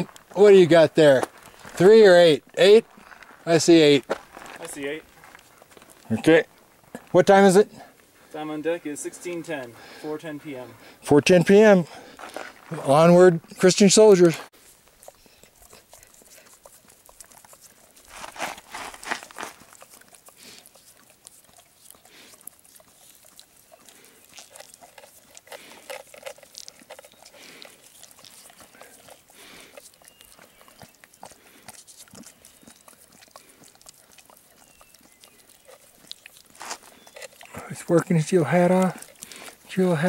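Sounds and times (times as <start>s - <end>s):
dog licking and slurping: 14.5s - 40.0s.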